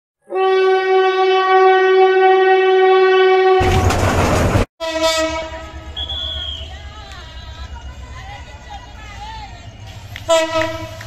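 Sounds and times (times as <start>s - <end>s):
diesel locomotive horn: 0.2s - 3.8s, 4.8s - 7.4s, 10.2s - 11.0s
passing train rumble: 3.5s - 11.0s.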